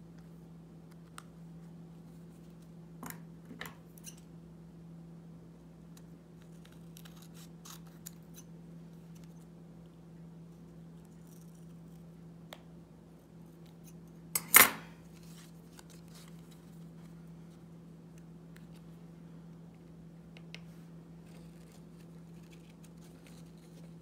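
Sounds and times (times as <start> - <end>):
steady low hum: 0.0 - 24.0
scissors snipping paper: 6.4 - 8.5.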